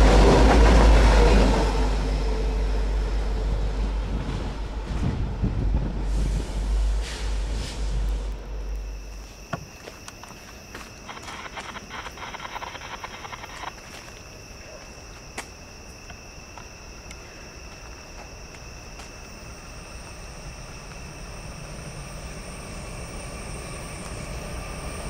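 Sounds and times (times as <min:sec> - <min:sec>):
insects chirring: 0:00.0 - 0:25.0
low rumble of train: 0:00.0 - 0:25.0
rapid crunching: 0:10.0 - 0:14.1.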